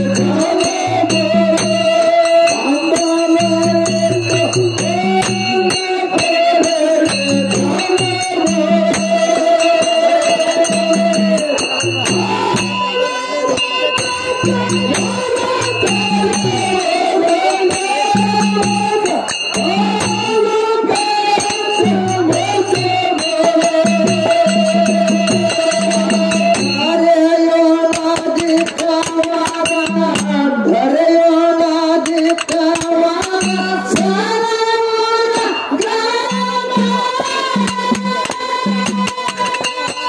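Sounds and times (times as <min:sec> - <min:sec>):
jingling hand percussion: 0:00.0 - 0:40.0
person singing: 0:00.0 - 0:40.0.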